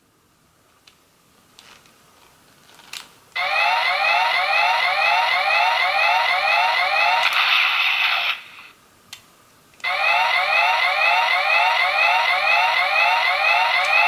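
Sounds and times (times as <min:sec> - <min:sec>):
toy electronic siren sound effect: 0:03.4 - 0:08.5, 0:09.8 - 0:14.0.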